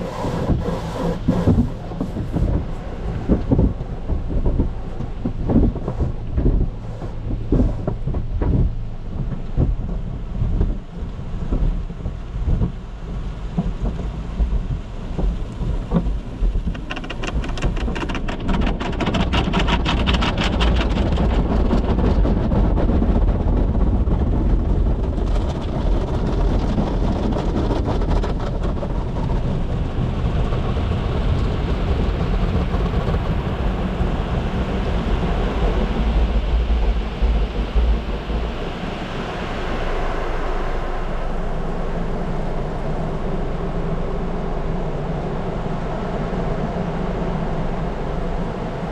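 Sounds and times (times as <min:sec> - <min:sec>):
water spray drumming on car: 0:00.0 - 0:22.1
low rumble: 0:00.0 - 0:48.9.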